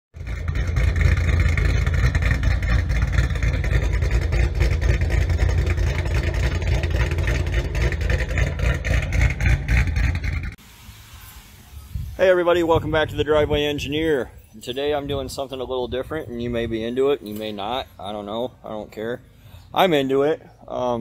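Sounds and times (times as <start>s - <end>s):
engine with rough exhaust: 0.1s - 10.7s
exhaust pops: 0.2s - 10.6s.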